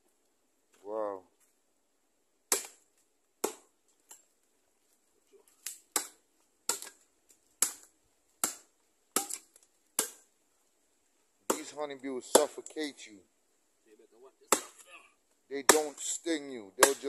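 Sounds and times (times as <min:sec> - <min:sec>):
machete chopping into log: 0:02.5 - 0:02.8, 0:03.4 - 0:03.6, 0:05.6 - 0:07.0, 0:07.6 - 0:10.2, 0:12.3 - 0:12.6, 0:14.5 - 0:14.8, 0:15.7 - 0:16.0, 0:16.8 - 0:17.0.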